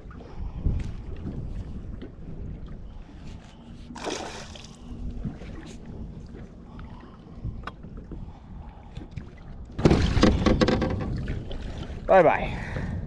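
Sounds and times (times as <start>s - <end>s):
water lapping against boat hull: 0.0s - 13.0s
wind: 0.0s - 13.0s
fish thrashing and splashing: 4.0s - 4.9s.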